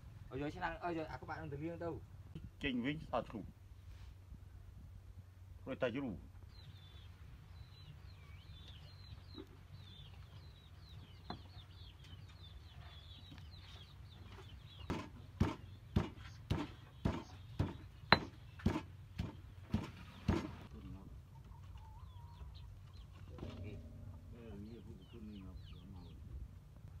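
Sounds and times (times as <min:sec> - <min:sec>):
faint bird chirping: 0:04.5 - 0:27.0
stone pestle pounding in mortar: 0:14.9 - 0:20.5.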